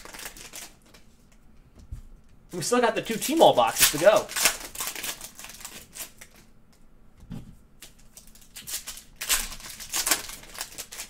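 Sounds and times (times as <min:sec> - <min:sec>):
foil wrapper crinkling and tearing: 0:00.0 - 0:01.0, 0:03.0 - 0:06.5, 0:07.8 - 0:11.0.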